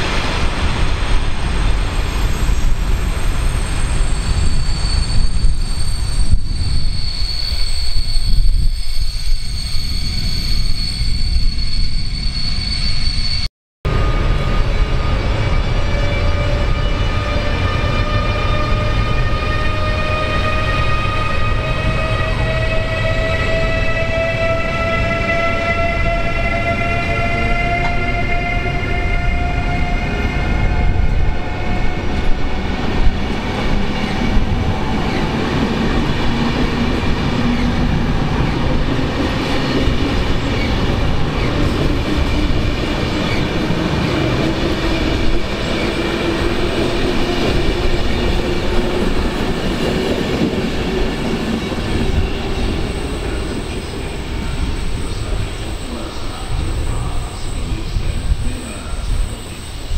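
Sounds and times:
train wheels rumbling on rails: 0:13.9 - 0:59.9.

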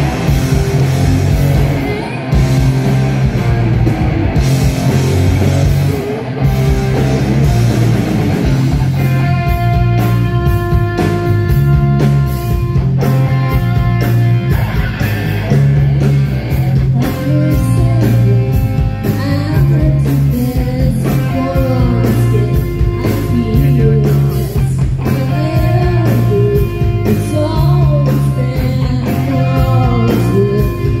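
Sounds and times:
rock band playing live: 0:00.0 - 0:31.0
person singing: 0:16.9 - 0:31.0.

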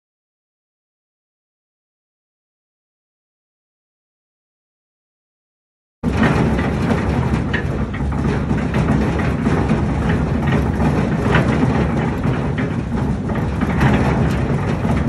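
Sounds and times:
clicks and knocks: 0:06.0 - 0:15.0
concrete mixer motor rumbling: 0:06.0 - 0:15.0.

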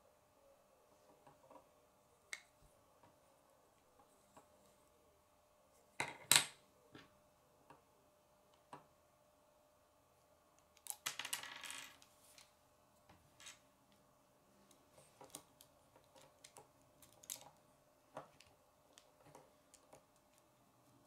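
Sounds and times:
plastic pieces clicking: 0:15.2 - 0:17.6.

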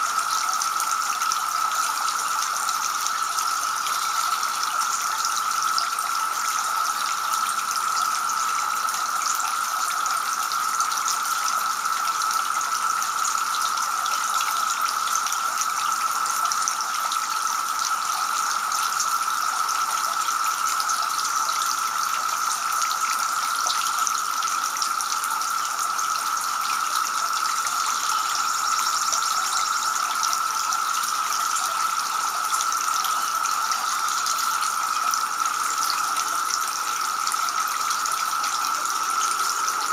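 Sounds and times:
fountain water splashing and trickling: 0:00.0 - 0:39.9.

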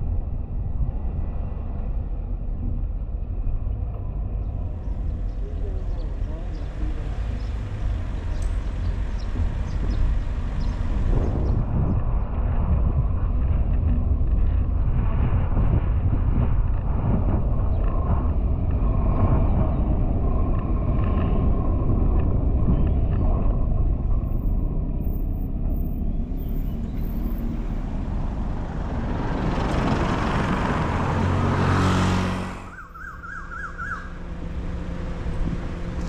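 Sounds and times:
car road and wind noise: 0:00.0 - 0:36.0
swell of noise: 0:24.0 - 0:36.0.

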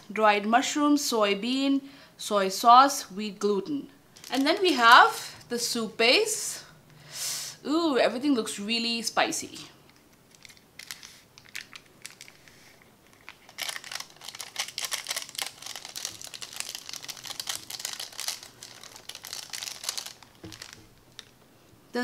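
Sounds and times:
plastic sachet crinkling: 0:04.1 - 0:05.3, 0:09.9 - 0:21.4.

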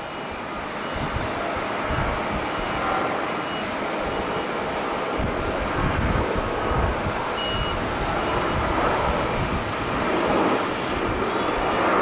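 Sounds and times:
jet engines at takeoff thrust: 0:00.0 - 0:12.0
short electronic beeps: 0:07.3 - 0:08.6.

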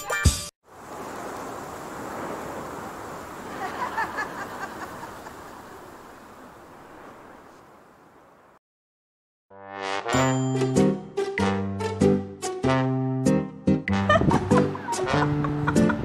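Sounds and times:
wind rushing on microphone: 0:00.8 - 0:08.5, 0:14.1 - 0:16.0.

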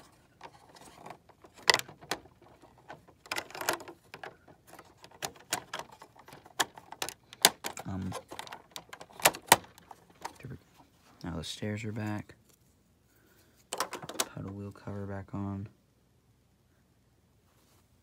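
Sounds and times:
plastic bricks clicking and rattling: 0:00.0 - 0:10.6, 0:13.7 - 0:14.5.

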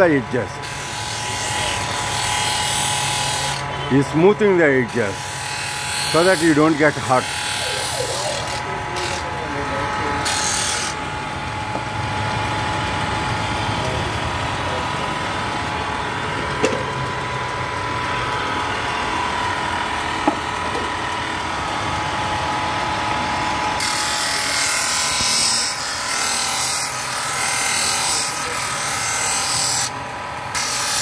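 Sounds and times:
sanding disc whining: 0:00.0 - 0:15.6, 0:23.7 - 0:31.0.

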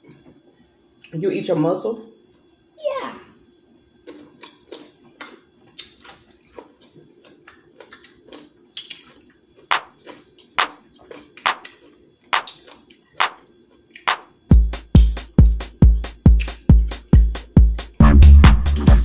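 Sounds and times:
wet mouth smacks and chewing: 0:03.9 - 0:14.2, 0:16.3 - 0:17.0.

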